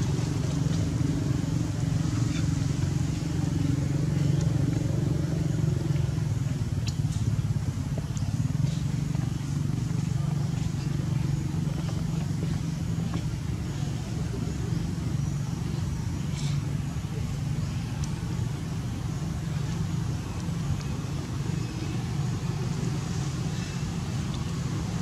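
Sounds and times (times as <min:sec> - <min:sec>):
engine humming: 0:00.0 - 0:25.0.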